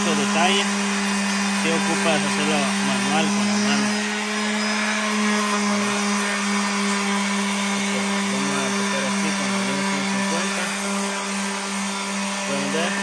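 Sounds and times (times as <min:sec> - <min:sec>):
electric sander motor hum: 0:00.0 - 0:13.0
sandpaper hissing on metal: 0:07.9 - 0:11.8, 0:12.4 - 0:13.0.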